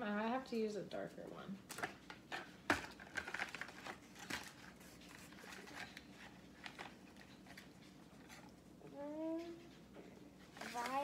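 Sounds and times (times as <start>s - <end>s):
crayons clicking and rustling: 1.6s - 8.7s, 9.3s - 11.0s.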